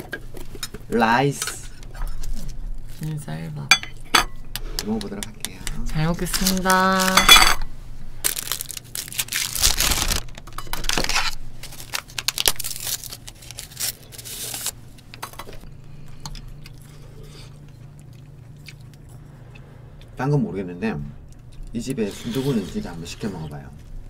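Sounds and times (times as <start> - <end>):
spoons clinking on dishes: 3.7 - 4.4, 7.0 - 7.6
person eating: 13.5 - 20.2, 21.3 - 23.5.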